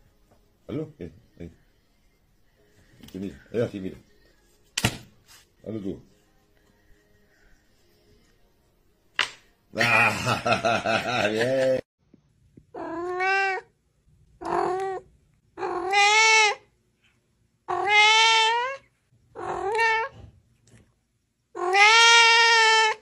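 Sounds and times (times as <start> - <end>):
kitten meowing: 15.6 - 16.6, 17.7 - 18.8, 19.4 - 20.1, 21.6 - 23.0.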